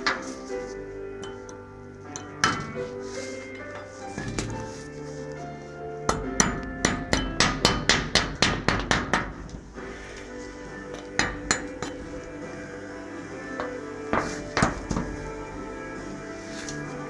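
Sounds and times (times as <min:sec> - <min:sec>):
chipping hammer tapping metal: 0:02.2 - 0:02.8, 0:06.1 - 0:09.6, 0:11.0 - 0:12.1.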